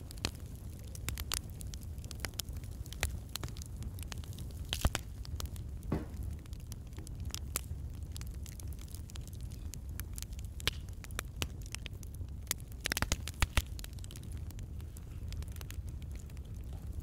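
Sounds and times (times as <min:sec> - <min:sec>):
faint crackles: 0:00.0 - 0:17.0.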